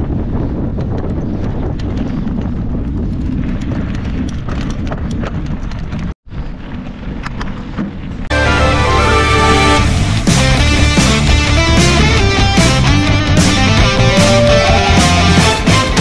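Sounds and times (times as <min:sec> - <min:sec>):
bike clicks and rattles: 0:00.0 - 0:08.2
wind and tyre rumble: 0:00.0 - 0:16.0.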